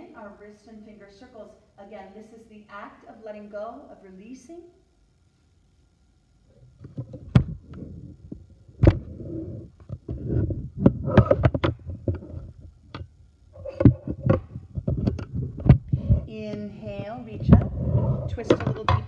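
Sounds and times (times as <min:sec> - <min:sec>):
microphone handling noise: 0:06.5 - 0:19.0.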